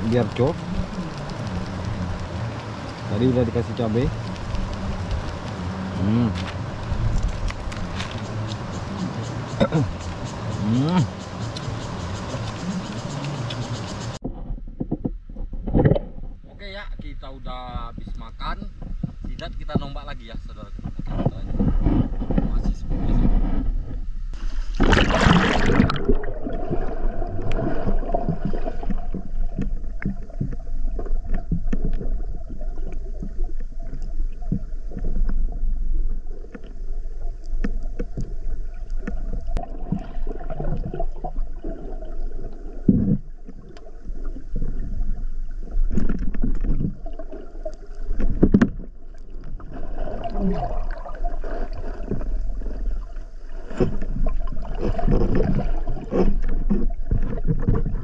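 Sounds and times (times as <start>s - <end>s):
muffled underwater rumble: 0.0s - 58.0s
underwater clicks: 6.4s - 14.2s, 36.4s - 41.0s
splash into river: 24.4s - 28.9s.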